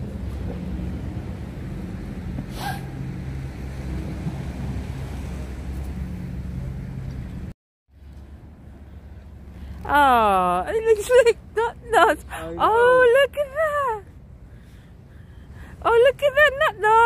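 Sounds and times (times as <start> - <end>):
wind rumbling on microphone: 0.0 - 7.5.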